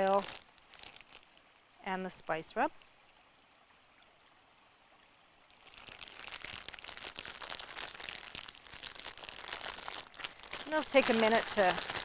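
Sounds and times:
plastic bag crinkling and squelching: 0.0s - 1.4s, 5.6s - 12.0s.

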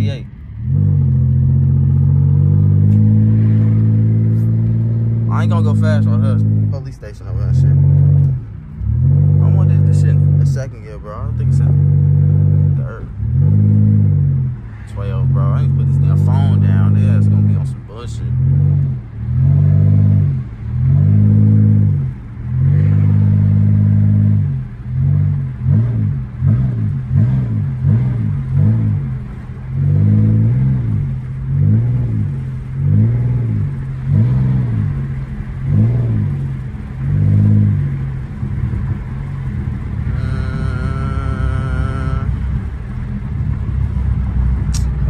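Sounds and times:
engine and road rumble: 0.0s - 45.0s
bass-heavy music on car stereo: 15.3s - 43.6s.

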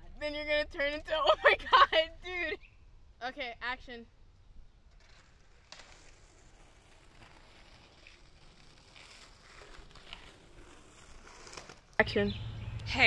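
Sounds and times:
faint outdoor background noise: 0.0s - 13.0s.

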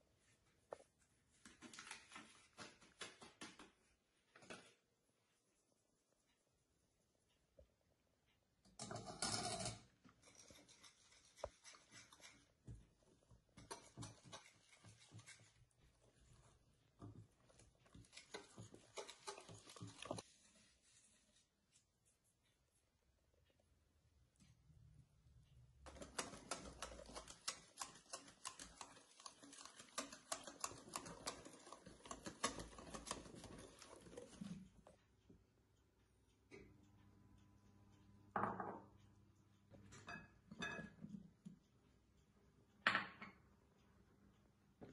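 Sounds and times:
whisk scraping in glass bowl: 8.9s - 21.1s, 25.9s - 34.9s
soft wet stirring: 9.8s - 36.5s.

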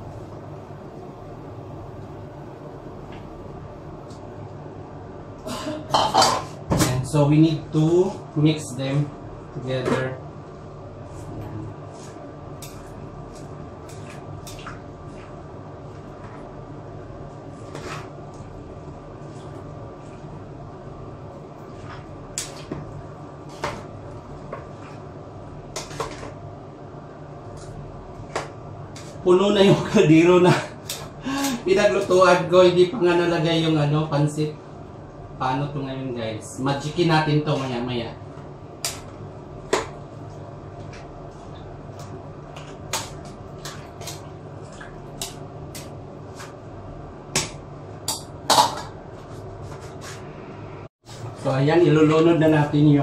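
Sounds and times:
steady low hum: 0.0s - 53.0s.

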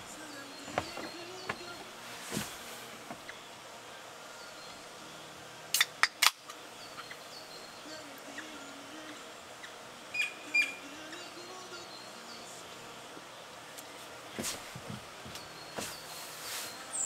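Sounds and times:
steady hiss: 0.0s - 17.0s
sharp clicks: 5.7s - 6.6s
faint high chirps: 15.2s - 17.0s.

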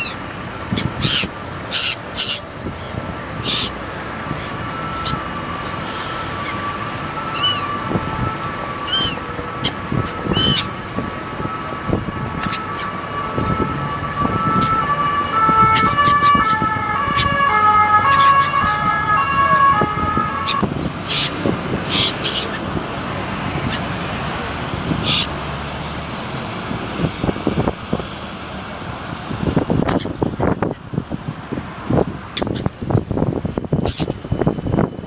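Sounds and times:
traffic noise: 0.0s - 35.0s
wind: 0.0s - 35.0s
two-tone emergency siren: 4.5s - 20.8s, 33.6s - 35.0s.

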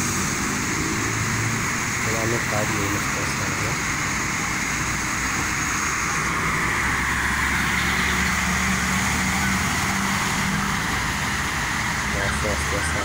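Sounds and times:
truck engine hum: 0.0s - 13.0s
car driving past: 5.9s - 13.0s.

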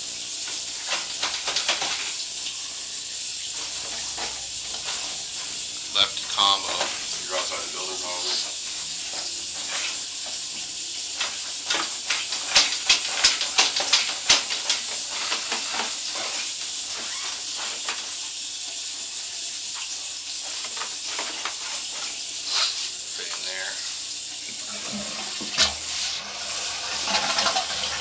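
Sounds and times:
steady hiss: 2.5s - 10.2s, 10.8s - 24.6s.

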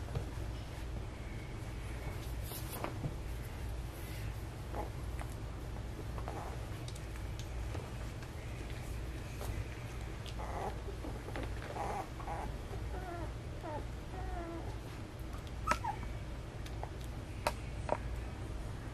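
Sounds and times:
steady low hum: 0.0s - 18.9s
puppies whimpering and squeaking: 10.2s - 14.9s, 15.6s - 16.2s.

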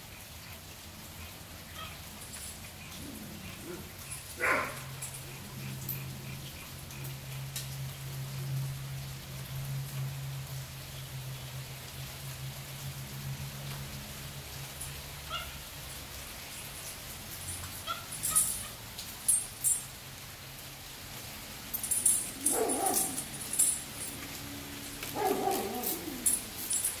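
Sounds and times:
big dogs barking: 1.3s - 7.4s, 21.8s - 27.0s.

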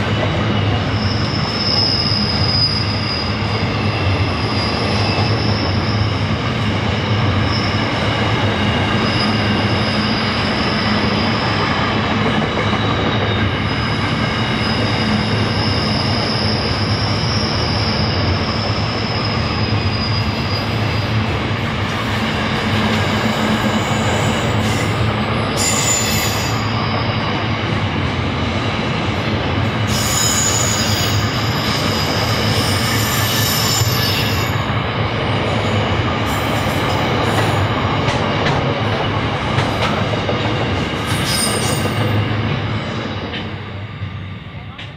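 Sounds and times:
train wheels on rails: 0.0s - 44.9s
high-pitched wheel squeals: 0.6s - 11.7s, 12.5s - 21.2s, 23.6s - 27.3s, 29.9s - 34.7s, 41.1s - 42.2s.

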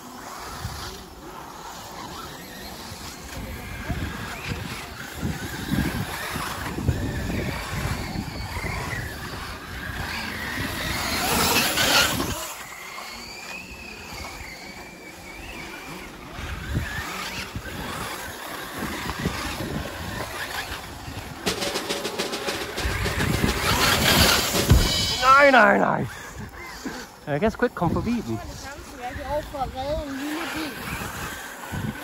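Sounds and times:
electric motors whining: 0.0s - 32.0s
fast rattle: 16.7s - 26.3s.

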